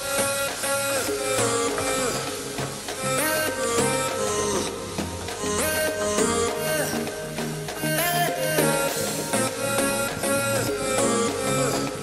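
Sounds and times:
steady beat: 0:00.0 - 0:12.0.

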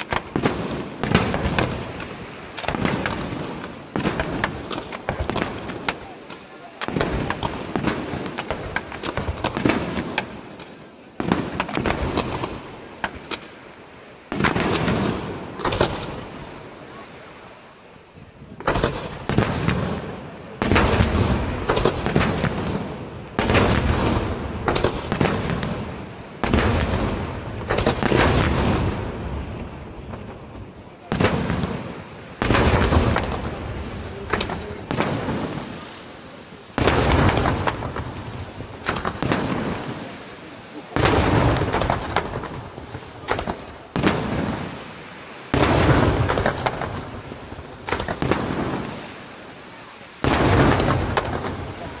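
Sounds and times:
firework shells bursting: 0:47.8 - 0:49.0.

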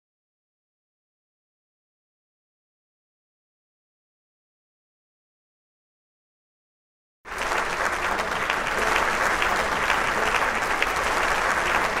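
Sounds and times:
crowd applauding: 0:07.3 - 0:12.0.

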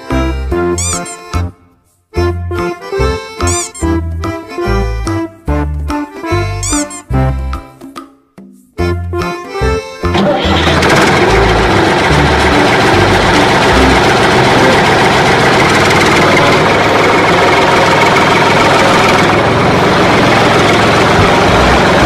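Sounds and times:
tractor engine idling: 0:10.1 - 0:22.0.

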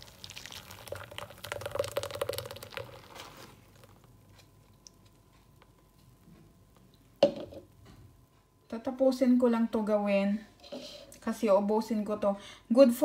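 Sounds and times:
juice pouring and splashing: 0:00.0 - 0:05.2.

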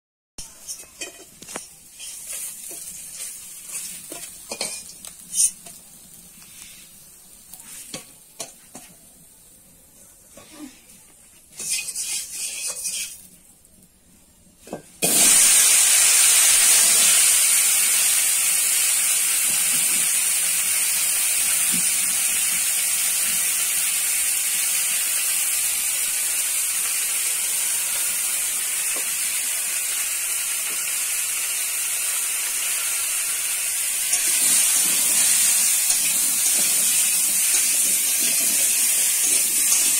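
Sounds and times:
potatoes sizzling in hot oil: 0:00.4 - 0:10.3, 0:11.4 - 0:39.9
metal spatula clinking: 0:00.6 - 0:05.8, 0:11.6 - 0:13.2.

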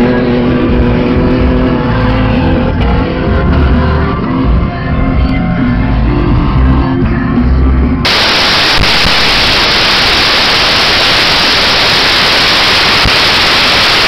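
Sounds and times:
rock music: 0:00.0 - 0:14.0
loud static hiss: 0:08.0 - 0:14.0.

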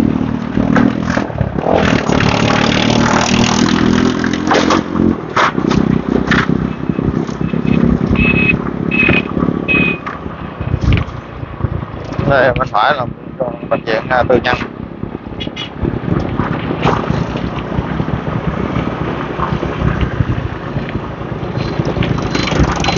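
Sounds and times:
motorbikes passing: 0:00.0 - 0:22.9
wind and road noise: 0:00.0 - 0:22.9
motorbike engine running: 0:05.9 - 0:12.6, 0:14.7 - 0:22.9
short high beeps: 0:07.4 - 0:10.0.

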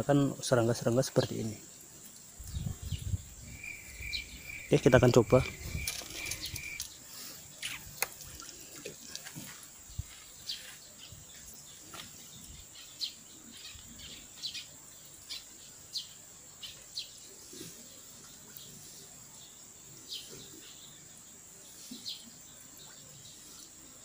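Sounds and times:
high-pitched insect trill: 0:00.8 - 0:08.4.

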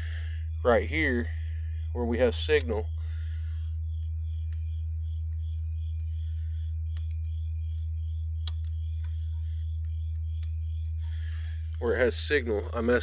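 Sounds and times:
low test tone from subwoofer: 0:00.0 - 0:13.0
faint clicks: 0:05.3 - 0:10.6.

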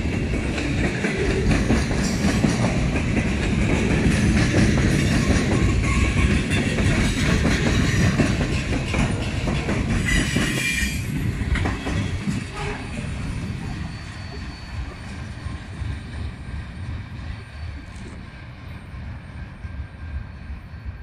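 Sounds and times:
train wheels rumbling on rails: 0:00.0 - 0:21.0
wheel squeal: 0:12.0 - 0:15.7.

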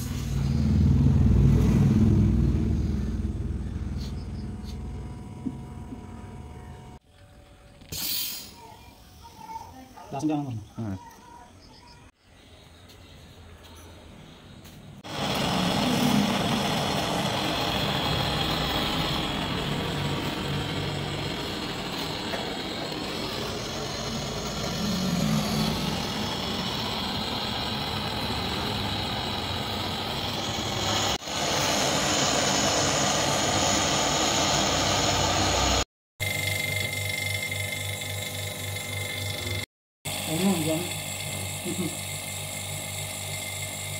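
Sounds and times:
gas torch flame rushing: 0:15.0 - 0:35.8.

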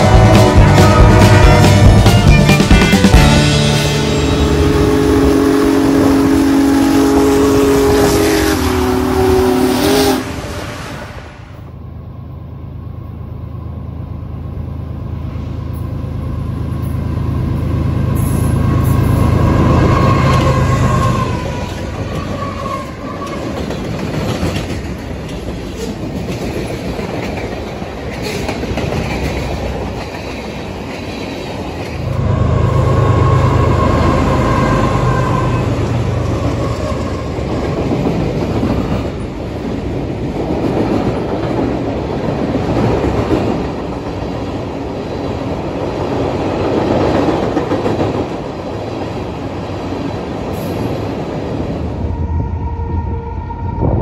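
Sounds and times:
intro music: 0:00.0 - 0:05.4
train horn: 0:00.0 - 0:11.7, 0:18.2 - 0:23.6, 0:32.0 - 0:37.6, 0:52.0 - 0:54.0
diesel locomotives rumbling: 0:00.0 - 0:54.0.

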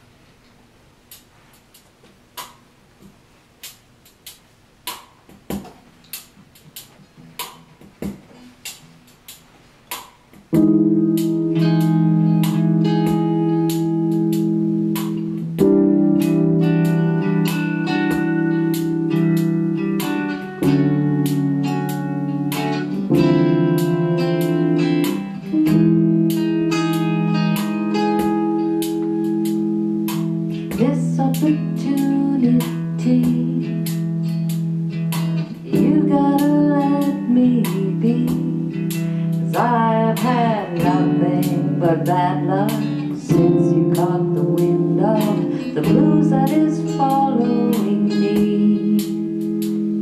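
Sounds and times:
finger snaps: 0:00.4 - 0:02.7, 0:03.6 - 0:07.7, 0:08.6 - 0:10.6, 0:27.6 - 0:30.8
acoustic guitar jazz chords: 0:01.1 - 0:50.0.

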